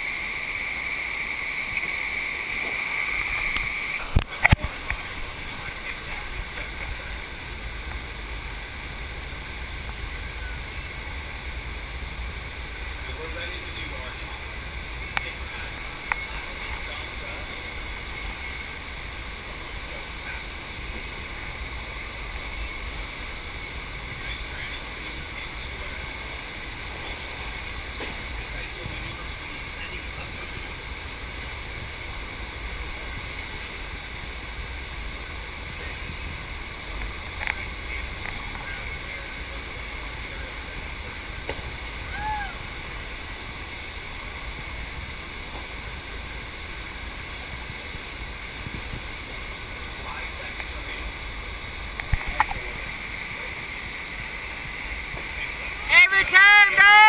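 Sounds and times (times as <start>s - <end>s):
pumped water rushing: 0.0s - 55.9s.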